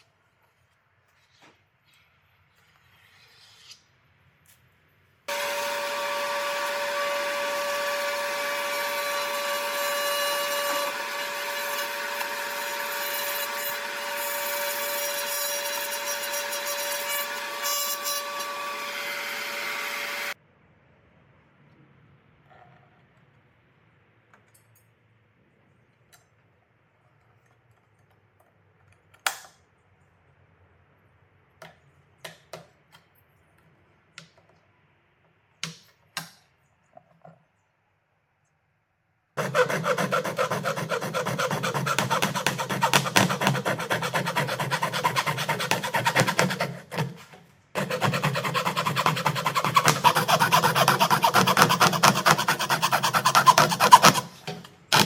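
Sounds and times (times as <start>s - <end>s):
hacksaw cutting plastic: 5.3s - 18.9s, 39.4s - 55.0s.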